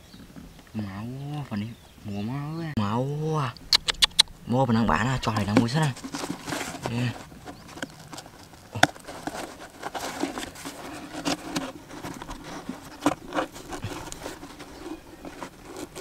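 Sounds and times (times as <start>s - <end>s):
cardboard and string rustling: 5.1s - 16.0s.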